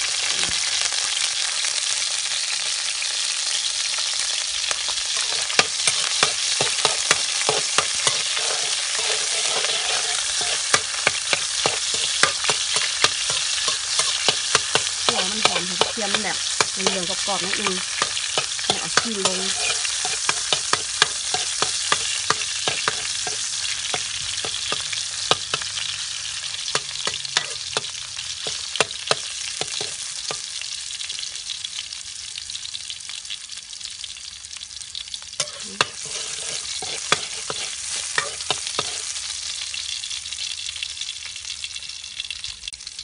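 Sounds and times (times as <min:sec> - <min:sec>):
garlic sizzling in hot oil: 0:00.0 - 0:43.0
spatula scraping a wok: 0:04.7 - 0:30.6, 0:35.4 - 0:39.3.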